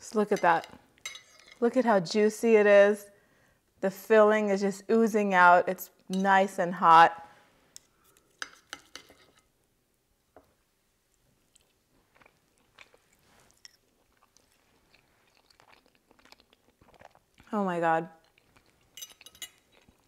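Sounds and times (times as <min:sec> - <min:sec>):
soft chewing: 0:10.4 - 0:20.0.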